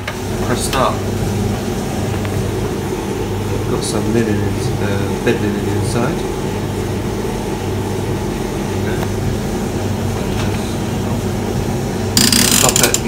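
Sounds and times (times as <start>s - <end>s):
tumble dryer running: 0.0s - 13.0s
loud burst of noise: 12.2s - 13.0s.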